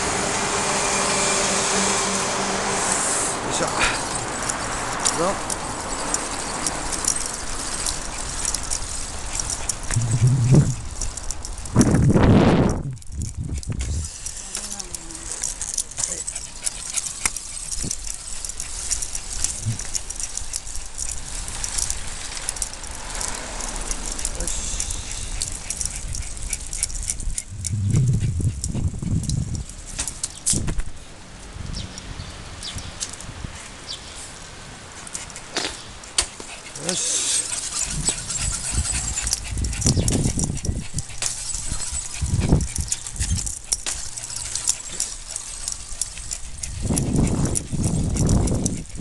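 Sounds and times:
bicycle rattling: 3.0 - 32.0, 34.9 - 49.0
dog sounds: 3.5 - 11.8, 13.2 - 30.3, 35.0 - 49.0
low steady rumble: 7.2 - 14.2, 14.9 - 30.0.

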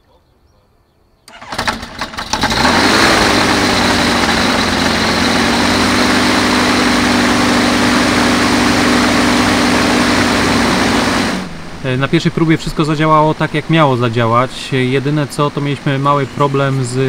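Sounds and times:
aircraft piston engine idling: 1.3 - 11.8.

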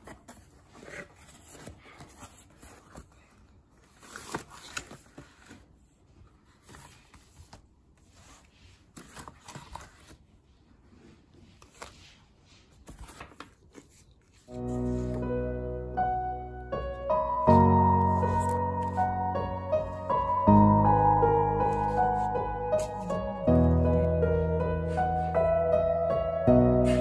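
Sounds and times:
cardboard and paper rustling: 0.0 - 15.4, 17.5 - 20.8, 21.6 - 24.2.

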